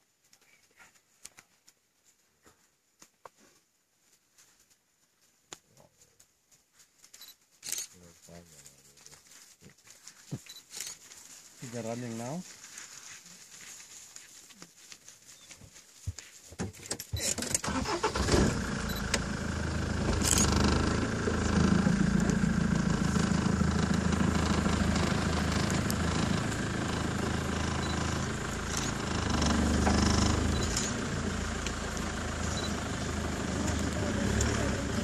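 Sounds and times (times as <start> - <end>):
vehicle engine starting and running: 17.2 - 35.0.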